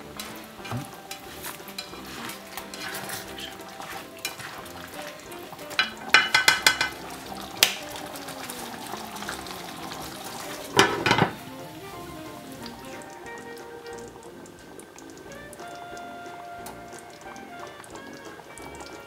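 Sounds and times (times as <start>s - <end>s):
spatula stirring in pot: 0.0s - 18.9s
sauce simmering and sizzling: 0.0s - 19.0s
soft background music: 0.0s - 19.0s
spatula clinking against pot: 0.2s - 8.0s
glass lid clattering: 5.8s - 7.0s, 10.7s - 11.4s.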